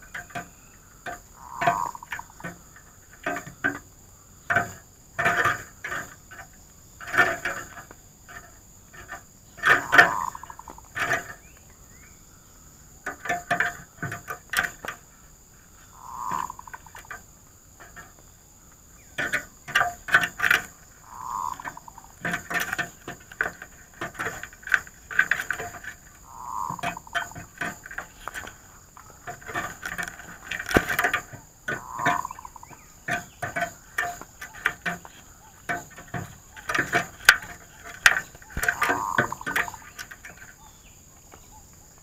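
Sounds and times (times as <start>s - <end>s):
dove cooing: 1.4s - 2.8s, 9.6s - 11.2s, 15.8s - 17.2s, 20.6s - 23.6s, 25.5s - 42.0s.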